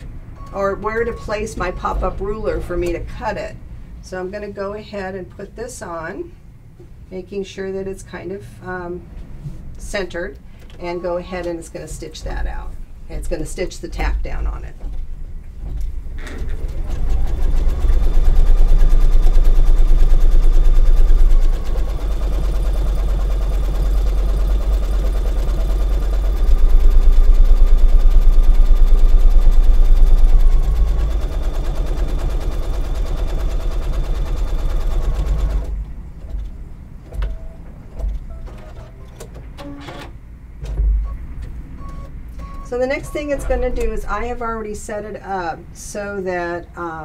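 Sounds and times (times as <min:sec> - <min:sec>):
embroidery machine stitching: 0:16.3 - 0:36.5.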